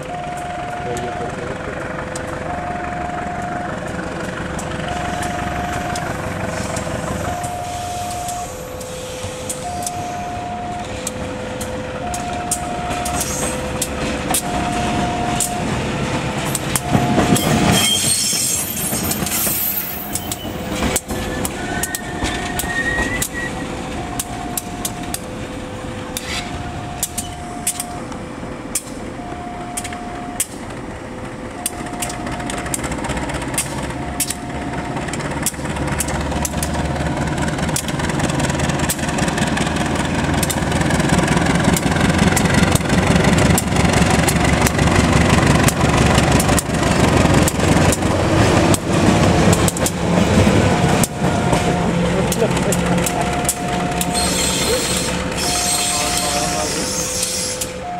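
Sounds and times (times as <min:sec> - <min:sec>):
locomotive engine rumble: 0:00.0 - 0:57.9
two-tone level-crossing warning: 0:00.0 - 0:57.9
train wheel clicks: 0:00.1 - 0:57.9
wheel squeal: 0:16.9 - 0:24.2, 0:53.1 - 0:57.9.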